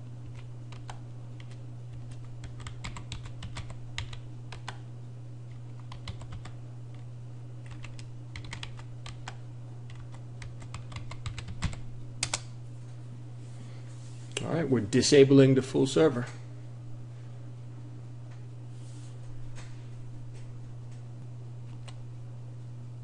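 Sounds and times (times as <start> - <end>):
steady low hum: 0.0 - 23.0
typing on a keyboard: 0.2 - 4.8, 5.7 - 6.6, 7.6 - 12.4.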